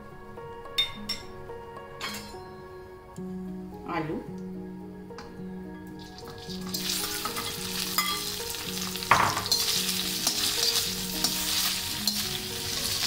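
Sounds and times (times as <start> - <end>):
potatoes sizzling in oil: 6.0 - 13.0
knock on pan: 9.1 - 9.5.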